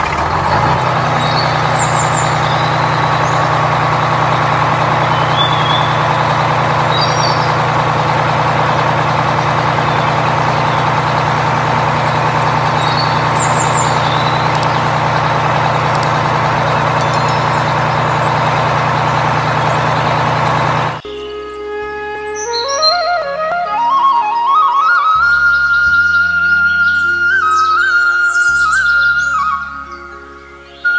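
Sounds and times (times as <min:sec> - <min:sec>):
heavy truck engine running: 0:00.0 - 0:21.0
faint bird chirps: 0:05.0 - 0:23.0.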